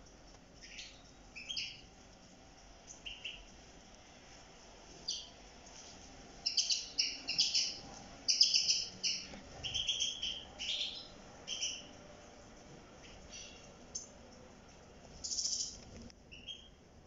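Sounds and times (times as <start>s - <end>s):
goldfinches twittering: 0.6s - 3.6s, 6.4s - 12.0s, 15.2s - 15.8s.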